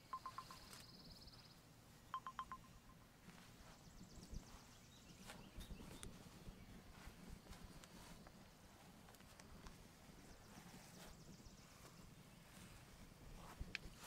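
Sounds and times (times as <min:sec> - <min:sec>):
high chirps: 0:00.0 - 0:01.1, 0:02.1 - 0:03.1.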